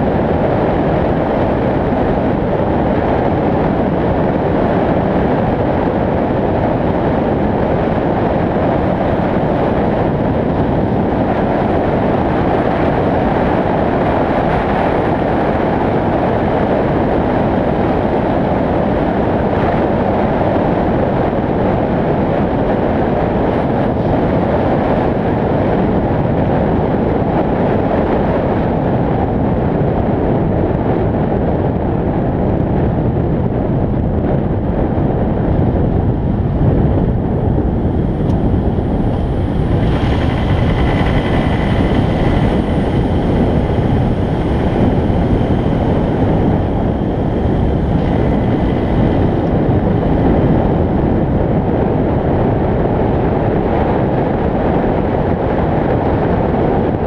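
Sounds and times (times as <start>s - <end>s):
wind rushing on microphone: 0.0s - 57.0s
tyre and road noise: 35.5s - 51.5s.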